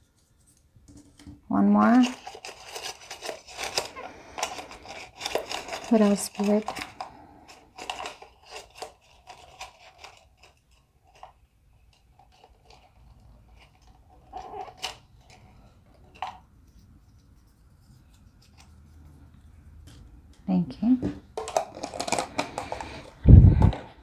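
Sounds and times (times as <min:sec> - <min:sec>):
fingers rummaging paper slips: 0:00.0 - 0:15.8
paper slips rustling in jar: 0:01.9 - 0:07.0.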